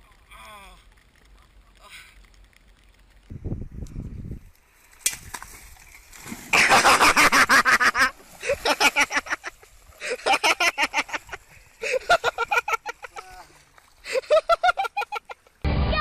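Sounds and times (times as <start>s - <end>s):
splash into creek: 4.9s - 10.2s.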